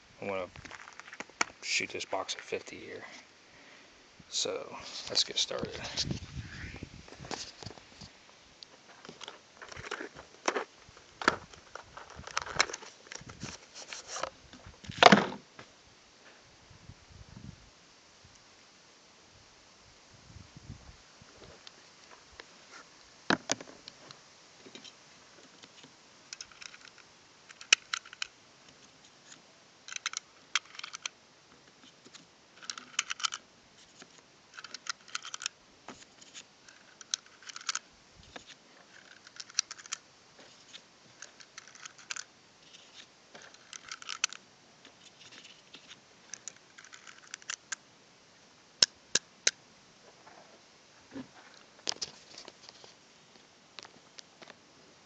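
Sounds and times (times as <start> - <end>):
cartridges clicking into magazine: 26.3 - 28.4, 29.9 - 31.2, 34.6 - 35.6.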